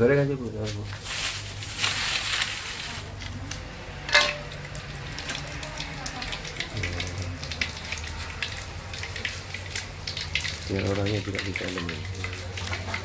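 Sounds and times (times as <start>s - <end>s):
oil sizzling in a wok: 1.0s - 13.0s
metal clink: 4.1s - 4.5s.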